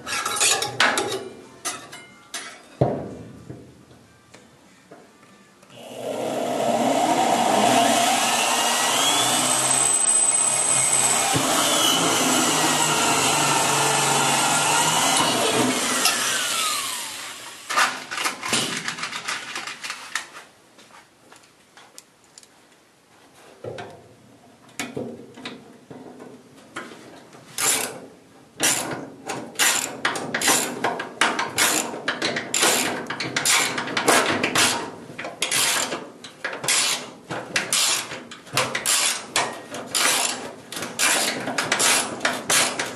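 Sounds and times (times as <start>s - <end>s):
hand tool scraping metal: 0.0s - 0.7s, 29.6s - 30.8s, 31.5s - 33.9s, 34.5s - 36.0s, 36.6s - 42.9s
electric drill boring into metal: 5.8s - 17.8s.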